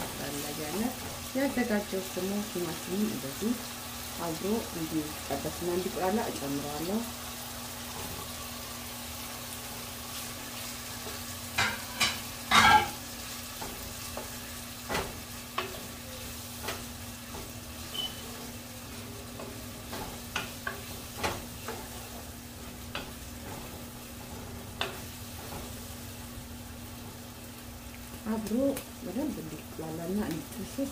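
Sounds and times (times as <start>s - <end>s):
meat and tomato sizzling in pot: 0.0s - 30.9s
wooden spoon knocking and scraping pot: 11.0s - 25.8s.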